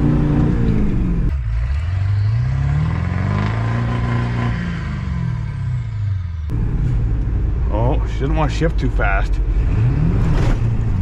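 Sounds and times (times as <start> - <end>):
pickup engine revving: 9.4 - 11.0.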